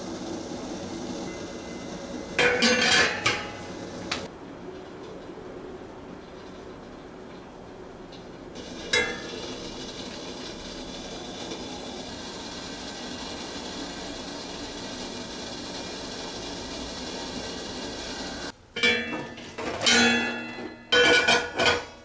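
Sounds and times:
pot steaming with hiss: 0.0 - 4.3, 8.6 - 18.6.

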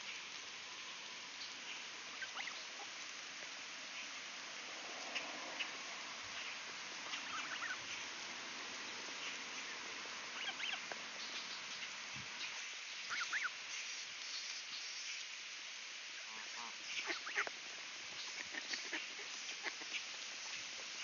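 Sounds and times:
steady background hiss: 0.0 - 21.0
goslings peeping: 2.1 - 3.0, 6.4 - 8.0, 10.3 - 11.9, 13.1 - 13.6, 16.2 - 17.5, 18.2 - 20.6.

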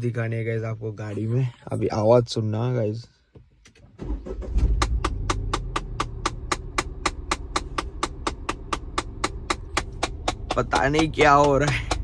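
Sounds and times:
car engine starting and running: 3.4 - 12.0
rhythmic engine knocking: 4.8 - 12.0.

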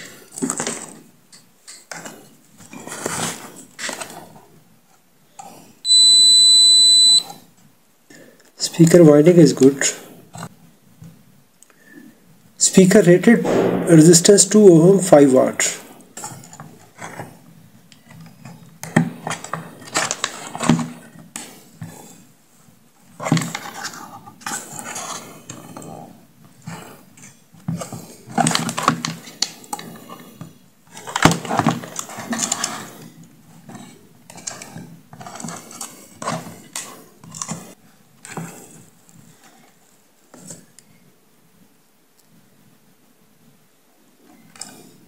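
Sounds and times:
plastic parts clattering: 0.0 - 4.3, 19.0 - 21.3.

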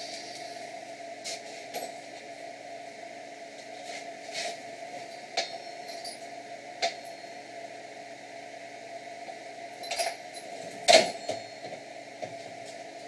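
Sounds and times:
steady motor hum: 0.0 - 13.0
metallic clinks and knocks: 9.8 - 11.8.

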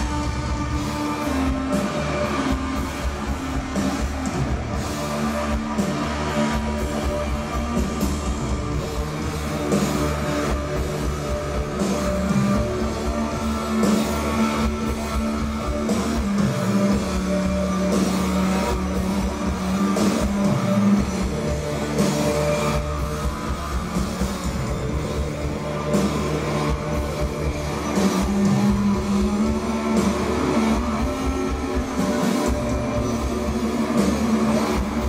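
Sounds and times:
rock band playing loud: 0.0 - 35.0.

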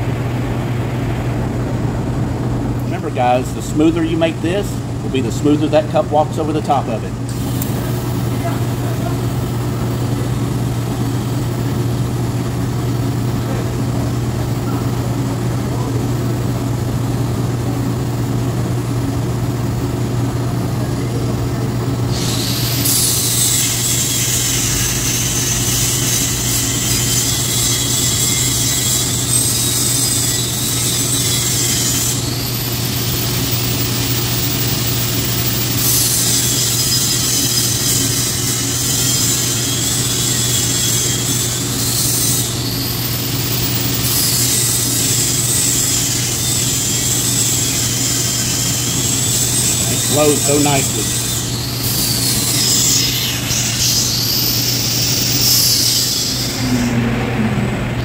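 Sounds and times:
welding machine hum: 0.0 - 58.0
welding arc hissing: 22.0 - 57.1.

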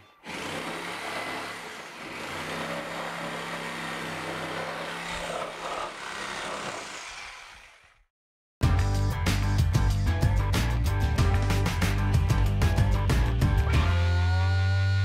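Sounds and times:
reciprocating saw cutting wood: 0.0 - 8.1.

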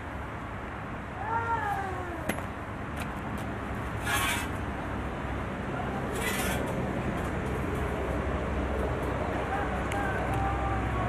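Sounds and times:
scraping on sheet metal: 4.0 - 4.6, 6.1 - 6.8.

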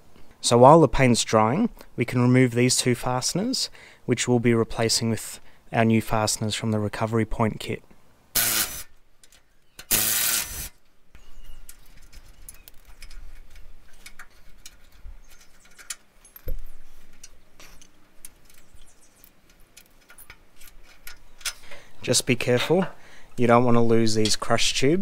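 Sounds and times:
cordless power tool spinning: 8.4 - 8.9, 9.8 - 10.8
metal nuts clinking: 11.5 - 21.8.

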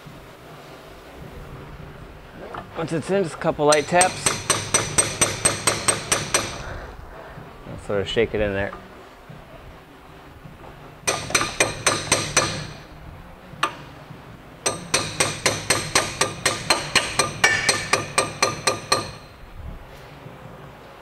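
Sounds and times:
hammer tapping on steel: 3.7 - 6.7, 11.0 - 12.9, 13.6 - 13.9, 14.6 - 19.4.

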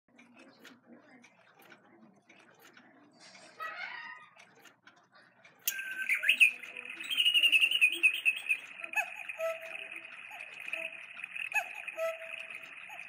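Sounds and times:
recorded birdsong warbling chirps: 5.7 - 13.0
short bird calls: 5.7 - 13.0.

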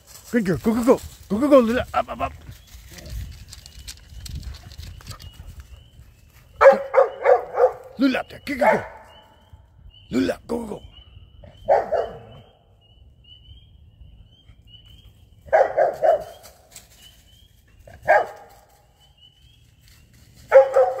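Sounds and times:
dog barking: 6.6 - 7.9, 8.6 - 9.1, 11.6 - 12.5, 15.5 - 16.4, 18.0 - 18.5, 20.5 - 21.0.

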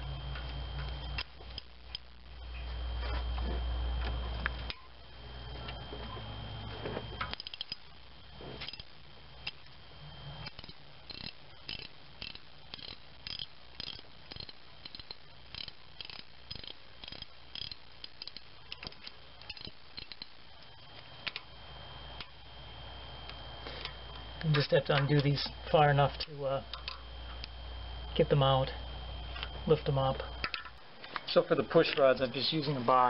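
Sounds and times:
socket ratchet clicking: 7.3 - 7.8, 8.6 - 9.7, 10.4 - 20.3.

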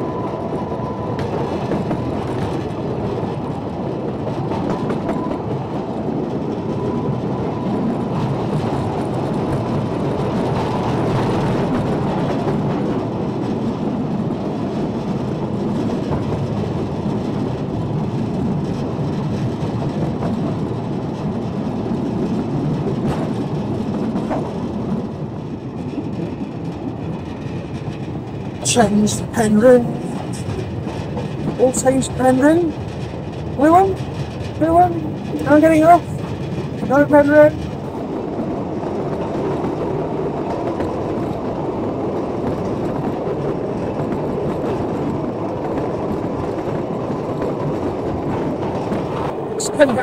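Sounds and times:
iron wheels rumbling on rails: 0.0 - 50.0.

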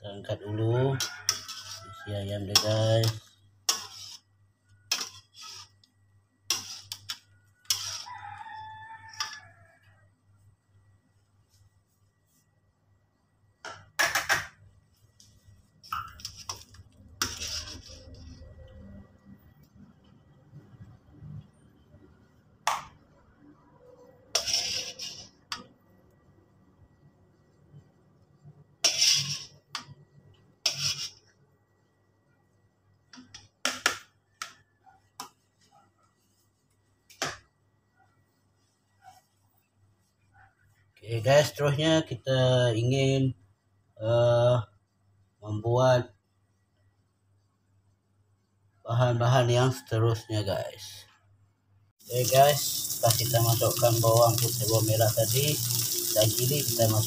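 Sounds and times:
metal spatula scraping in a wok: 0.6 - 5.9, 6.5 - 9.4, 15.9 - 18.7, 24.0 - 25.7, 28.8 - 29.9, 30.6 - 31.3, 52.1 - 57.0.

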